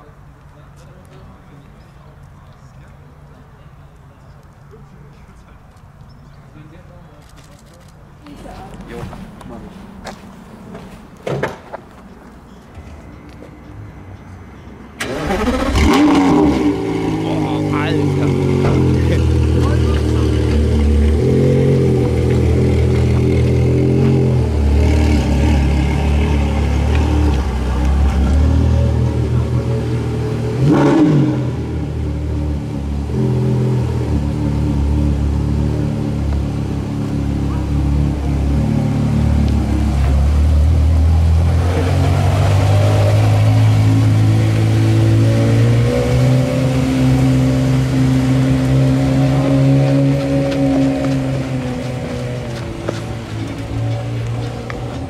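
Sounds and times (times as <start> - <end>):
sports car engine at low revs: 15.4 - 55.0.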